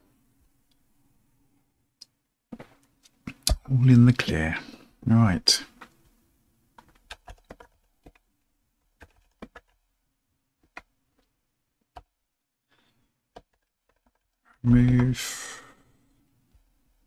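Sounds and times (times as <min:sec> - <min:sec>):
computer keyboard keystrokes: 0:06.8 - 0:08.2, 0:09.0 - 0:09.8.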